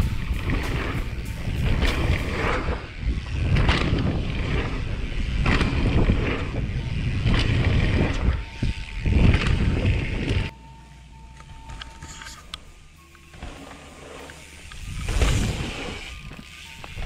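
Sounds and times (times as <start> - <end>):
bike clattering: 0.0 - 10.5
tyres rumbling over dirt: 0.0 - 10.5
wind rushing over microphone: 0.0 - 10.5, 14.7 - 16.4.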